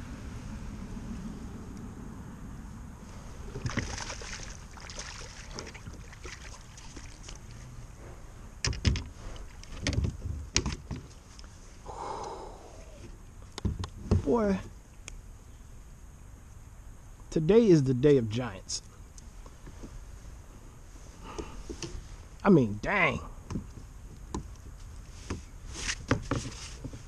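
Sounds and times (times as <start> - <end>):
water splashing: 3.3 - 7.7.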